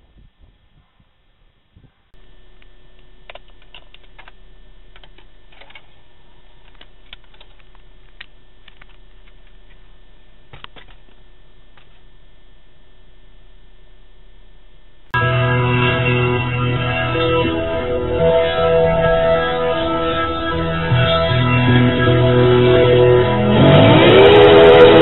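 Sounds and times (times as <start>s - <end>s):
steady car cabin hum: 16.1s - 23.4s.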